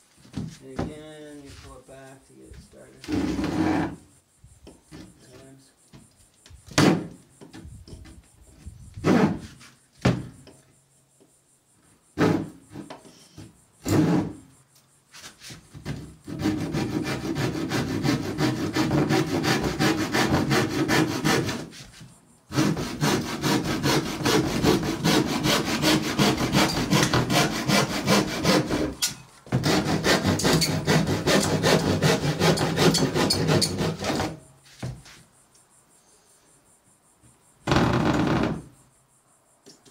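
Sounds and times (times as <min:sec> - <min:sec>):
hand saw cutting plywood: 0:12.2 - 0:12.9, 0:13.8 - 0:14.4, 0:15.8 - 0:34.5.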